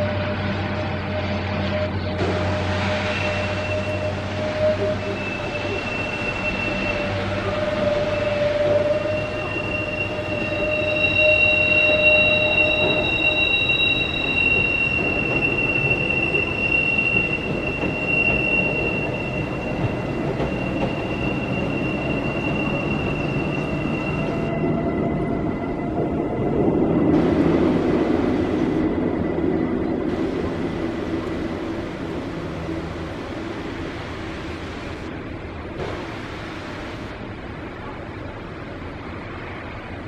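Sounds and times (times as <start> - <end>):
train wheels squealing: 0.0 - 27.1
rumble of train running gear: 0.0 - 40.0.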